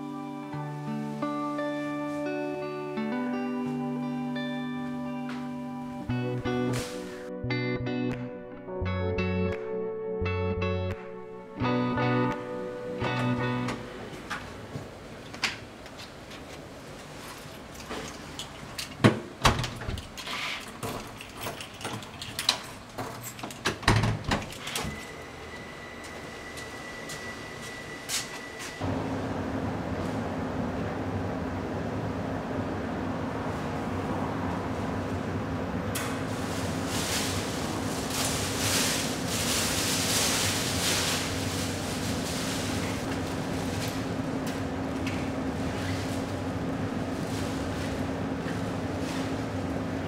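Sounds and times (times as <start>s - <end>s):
key rattling in lock: 20.0s - 23.8s
low machine hum: 24.9s - 50.0s
plastic bag and clothes rustling: 36.1s - 44.3s, 45.3s - 49.7s.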